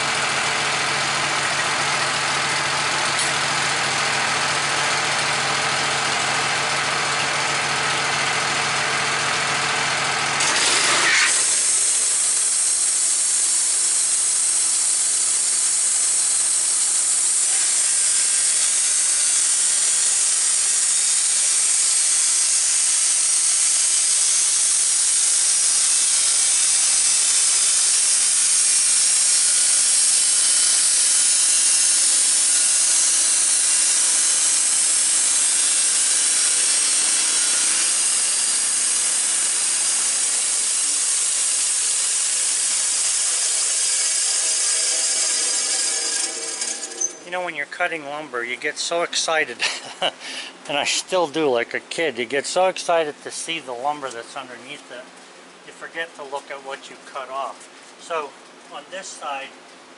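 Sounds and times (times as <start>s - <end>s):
sawmill engine under load: 0.0s - 51.6s
band blade hissing through wood: 25.7s - 47.2s.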